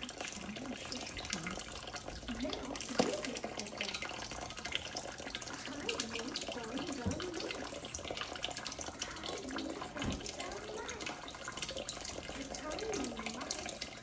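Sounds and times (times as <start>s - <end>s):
tap running into steel sink: 6.6s - 8.1s, 9.7s - 10.9s.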